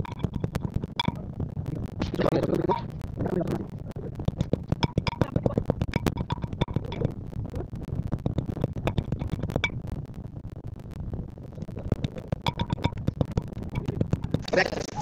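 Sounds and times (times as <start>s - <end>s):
pestle pounding in a mortar: 4.3s - 7.1s, 12.3s - 14.6s.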